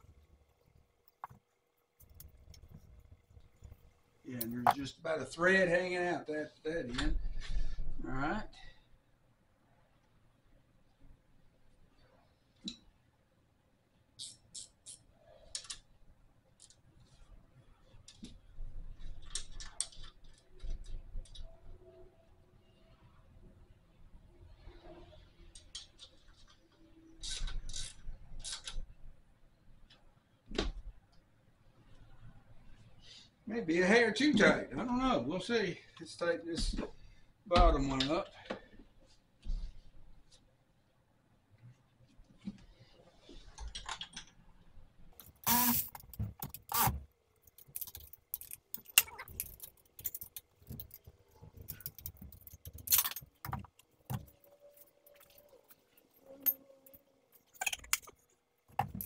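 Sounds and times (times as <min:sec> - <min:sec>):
wrench clicking: 0:45.2 - 0:51.0
metal tools clinking and knocking: 0:47.5 - 0:59.0.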